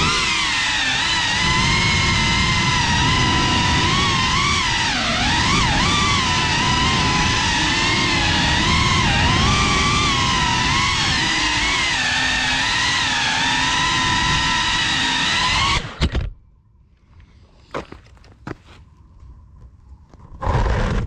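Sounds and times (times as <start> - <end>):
drone motors whining: 0.0 - 16.4.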